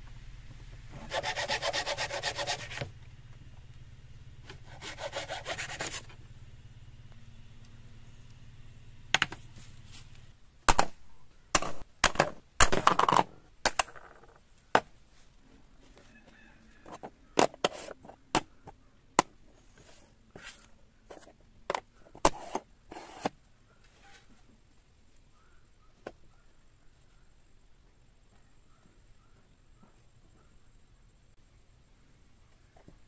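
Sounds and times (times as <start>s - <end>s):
coconut shells and wood knocking: 10.6s - 15.0s.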